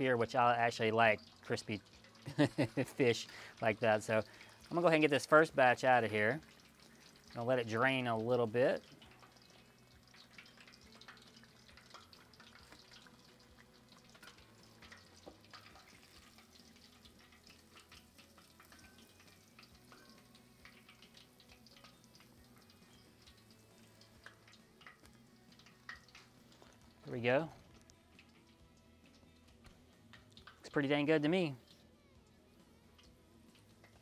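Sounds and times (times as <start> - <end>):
hot oil sizzling and crackling: 0.0 - 34.0
small oil pops: 8.8 - 27.0.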